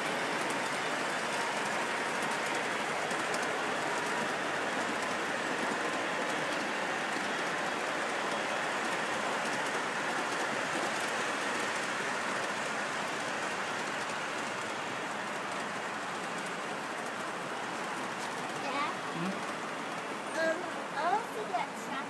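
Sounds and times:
rail joints clicking: 0.0 - 21.5
model train wheels whirring: 0.0 - 22.0.

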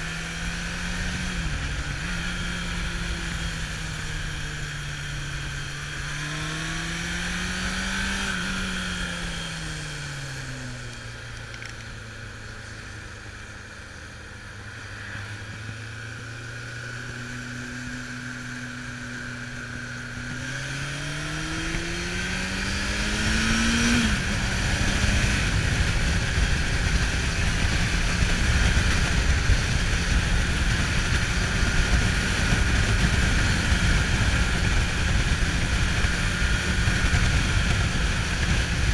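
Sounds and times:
motorcycle engine revving: 0.0 - 38.9
wind rushing on microphone: 21.1 - 38.9.

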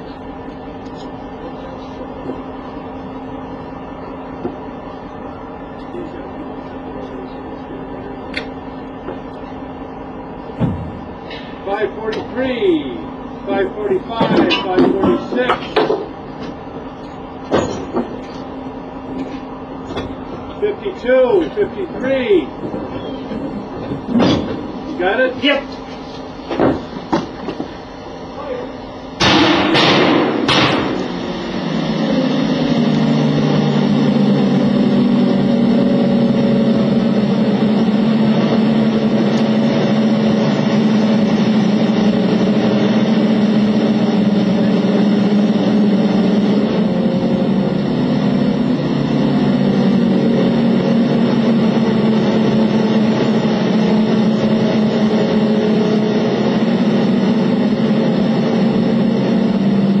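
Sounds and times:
fire-suppression generator rushing hiss: 18.1 - 60.0.

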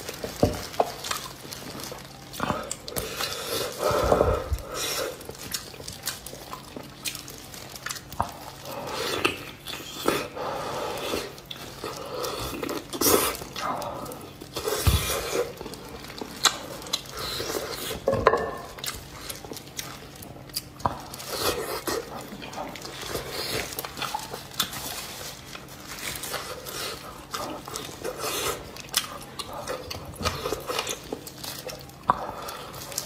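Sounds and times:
gloved fingers squishing food: 0.0 - 33.0
wet chewing and lip smacks: 11.3 - 18.0.

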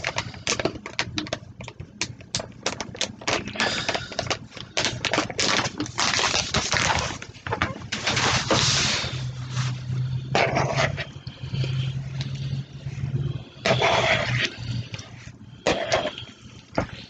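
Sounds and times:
paper bag tearing and crinkling: 4.8 - 11.0.

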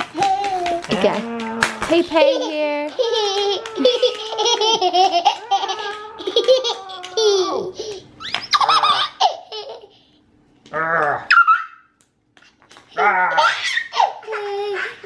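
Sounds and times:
baby laughing: 0.0 - 1.1, 1.8 - 10.0, 12.9 - 15.0.

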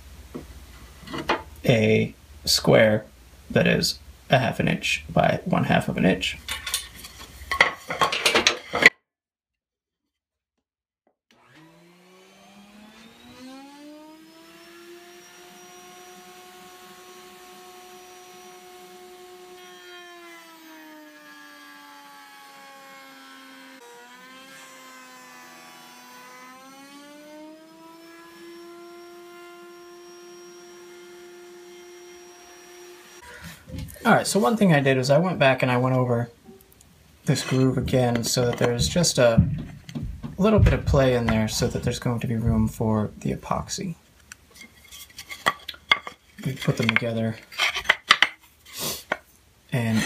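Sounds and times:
router bit cutting wood: 11.3 - 33.5, 46.0 - 49.2
router whine: 11.3 - 33.9.

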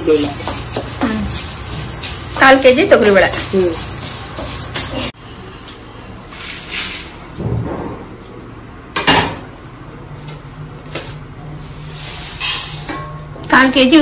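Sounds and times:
metal pans and lids clanking: 12.2 - 13.3.

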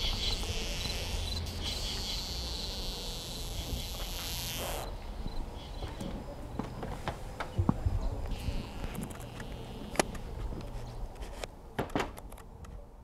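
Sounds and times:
insects chirping: 0.0 - 10.4.

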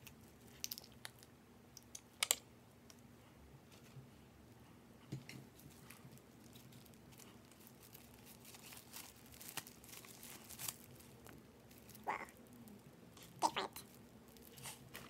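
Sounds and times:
plastic container crinkling: 5.5 - 15.0.

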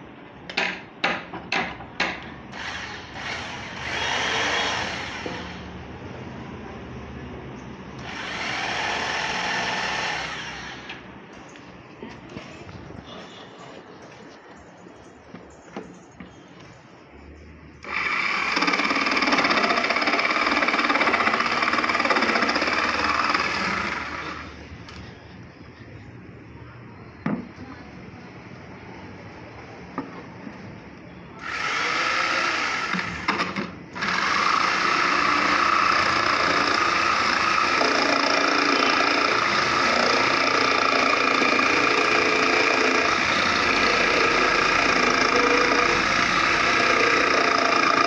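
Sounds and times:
electric jigsaw motor running: 2.5 - 5.7, 8.0 - 11.0, 17.8 - 24.5, 31.4 - 48.0.

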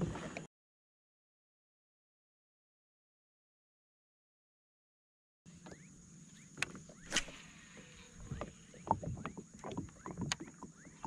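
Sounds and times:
kayak gear clicks and knocks: 6.5 - 7.4, 8.2 - 11.0.

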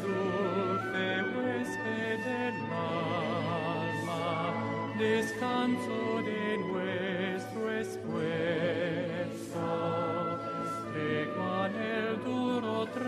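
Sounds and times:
held musical accompaniment: 0.0 - 13.0
person singing with vibrato: 0.0 - 13.0.

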